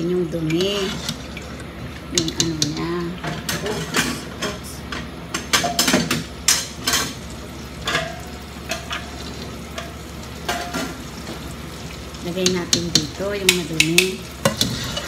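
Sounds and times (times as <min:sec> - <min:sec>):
utensil scraping and tapping a pot: 0:00.4 - 0:01.2, 0:02.1 - 0:07.2, 0:12.4 - 0:15.0.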